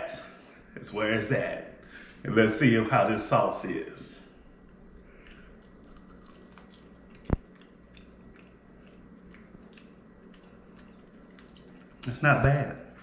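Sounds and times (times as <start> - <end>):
faint chewing: 4.6 - 12.2, 12.8 - 13.0.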